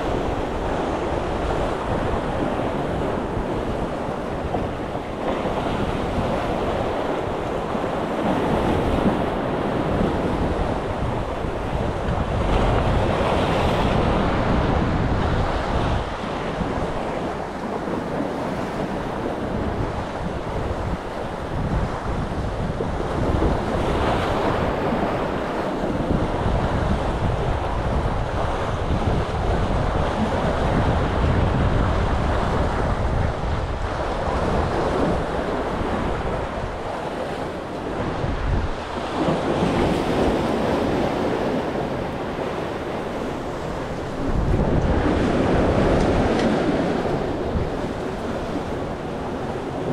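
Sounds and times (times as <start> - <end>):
wind buffeting microphone: 0.0 - 49.9.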